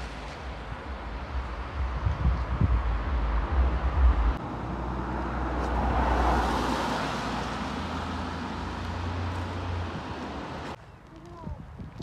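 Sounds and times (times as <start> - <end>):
car passing on wet road: 0.0 - 2.0, 2.8 - 10.8
wind rumble on microphone: 0.0 - 4.4, 9.7 - 12.0.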